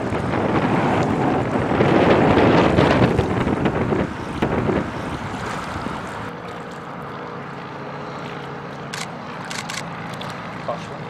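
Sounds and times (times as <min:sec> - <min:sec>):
wind buffeting microphone: 0:00.0 - 0:06.3
boat engine drone: 0:00.0 - 0:11.0.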